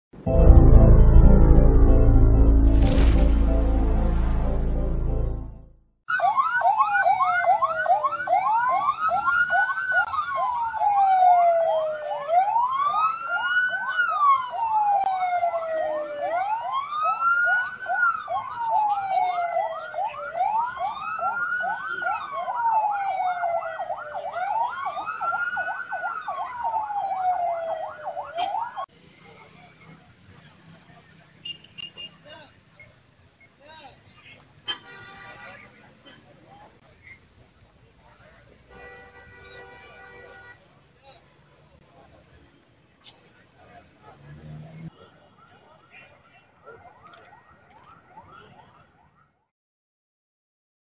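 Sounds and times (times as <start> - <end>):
intro music: 0.2 - 5.9
police sirens wailing and yelping: 6.1 - 28.9, 43.8 - 49.3.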